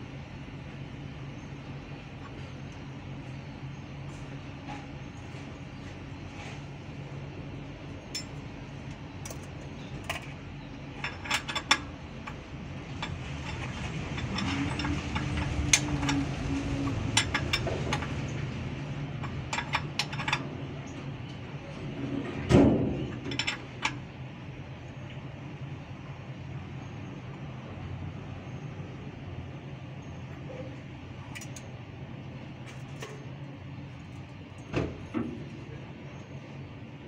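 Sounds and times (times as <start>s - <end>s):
spanner clinking on bolts: 8.1s - 21.4s, 22.8s - 24.1s, 30.5s - 31.7s.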